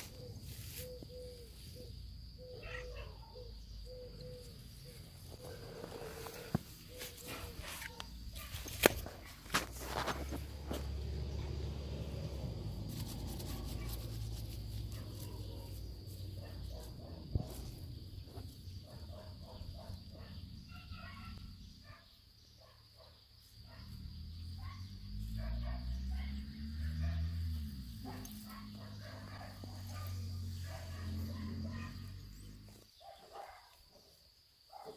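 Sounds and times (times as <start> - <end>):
kittens rustling in grass: 0.0 - 1.8, 4.9 - 11.6, 12.5 - 18.6.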